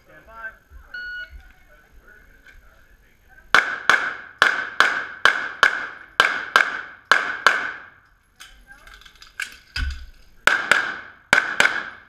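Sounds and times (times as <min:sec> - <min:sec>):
pistol shots echoing indoors: 0:03.5 - 0:08.0, 0:10.5 - 0:12.0.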